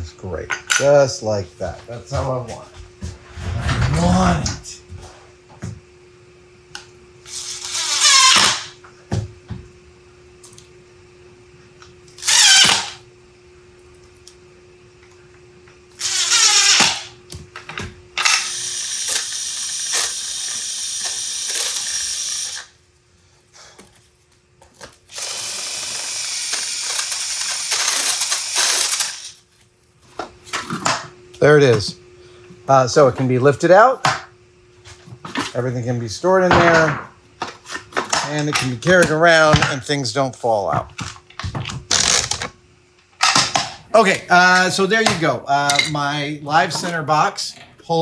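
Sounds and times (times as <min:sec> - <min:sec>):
cordless power driver whirring: 0:07.3 - 0:08.7, 0:12.1 - 0:13.0, 0:16.0 - 0:17.1, 0:18.2 - 0:22.7, 0:25.1 - 0:29.4.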